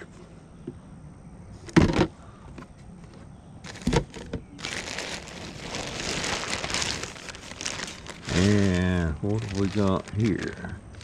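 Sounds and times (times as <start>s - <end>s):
plastic bag rustling: 3.6s - 11.0s.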